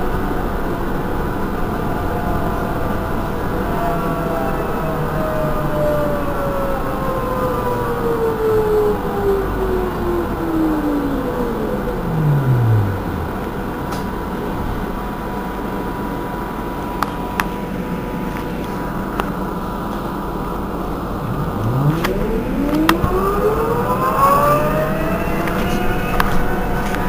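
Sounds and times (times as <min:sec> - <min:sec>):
electric motor whine: 0:09.9 - 0:14.0, 0:20.7 - 0:27.0.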